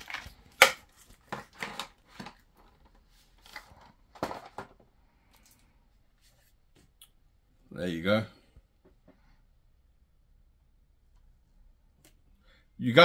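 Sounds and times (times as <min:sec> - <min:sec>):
battery packs scraping and rustling: 0:00.0 - 0:04.6.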